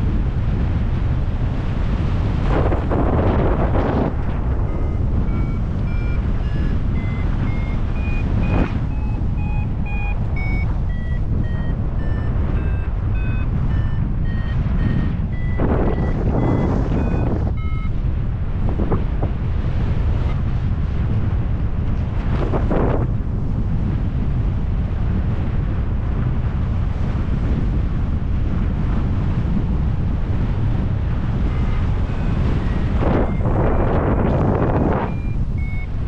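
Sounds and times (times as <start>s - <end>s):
wind noise on microphone: 0.0s - 36.0s
variometer beeping: 3.6s - 18.1s, 31.3s - 36.0s.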